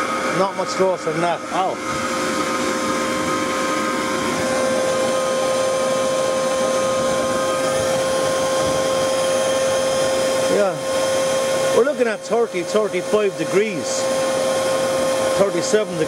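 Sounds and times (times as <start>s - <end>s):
electric air pump whining: 0.0s - 16.0s
rushing air: 1.1s - 11.9s.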